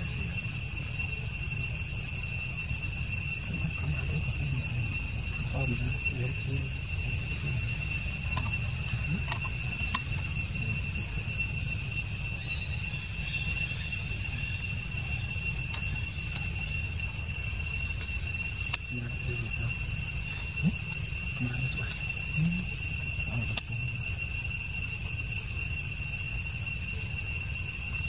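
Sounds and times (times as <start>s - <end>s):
insects chorus: 0.0s - 28.0s
sharp clicks: 8.4s - 10.2s, 18.0s - 18.9s.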